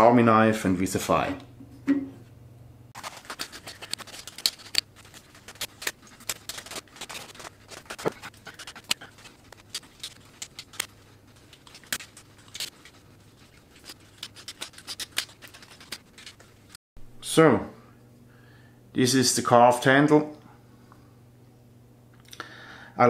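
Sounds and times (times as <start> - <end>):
knife whittling wood: 3.0 - 16.8.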